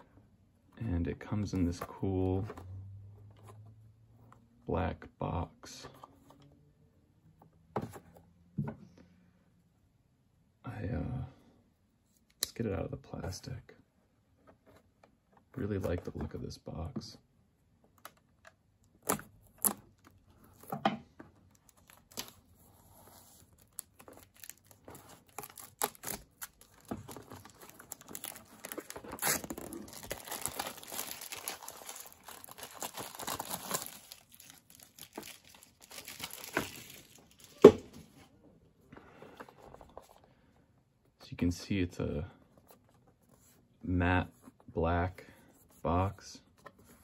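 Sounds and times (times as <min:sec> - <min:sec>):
plastic wrap crinkling and tearing: 0:23.5 - 0:37.6.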